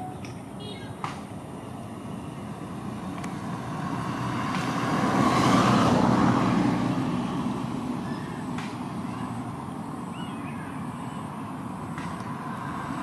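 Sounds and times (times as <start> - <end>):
car driving past: 2.7 - 9.0.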